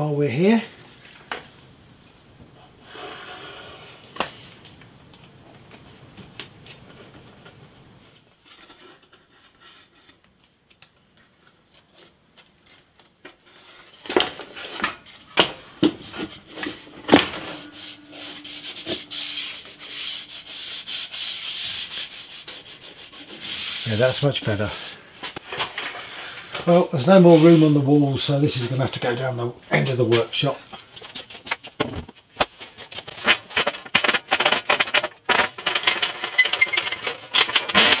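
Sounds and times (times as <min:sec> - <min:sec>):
wood rubbing on wood: 0:15.8 - 0:25.4.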